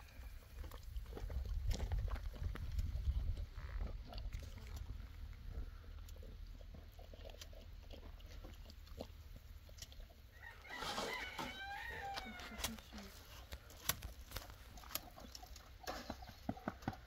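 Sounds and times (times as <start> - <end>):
rooster crowing: 10.3 - 12.7
faint clicks and rustles: 12.1 - 16.9.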